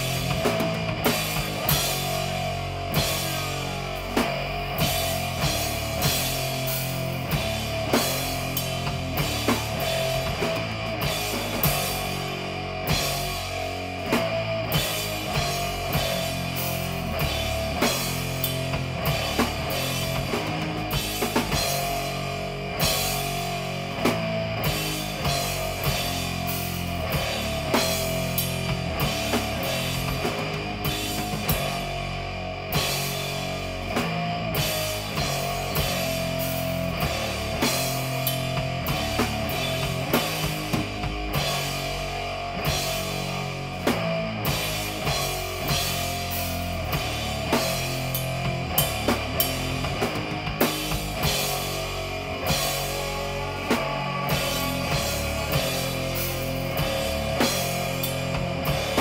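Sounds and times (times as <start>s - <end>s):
live rock band playing: 0.0s - 59.0s.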